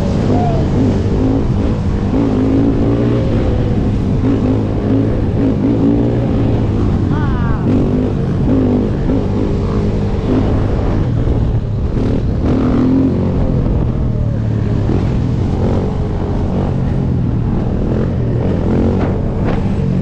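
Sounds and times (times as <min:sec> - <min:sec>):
atv engine revving: 0:00.0 - 0:20.0
dirt bike engines: 0:00.0 - 0:20.0.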